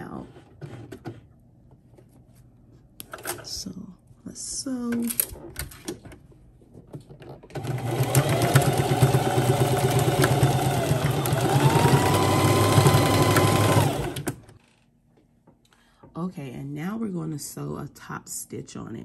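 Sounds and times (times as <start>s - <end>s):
sewing machine stitching: 7.5s - 14.6s.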